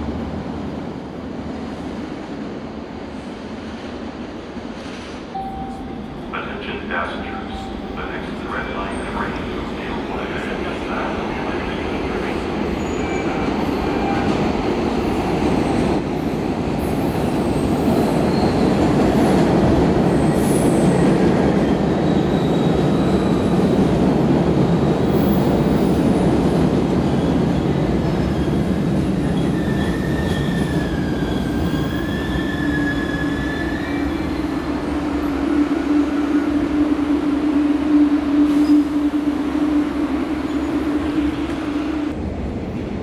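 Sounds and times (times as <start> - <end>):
subway train rumbling: 0.0 - 43.0
high wheel squeal: 29.3 - 34.4.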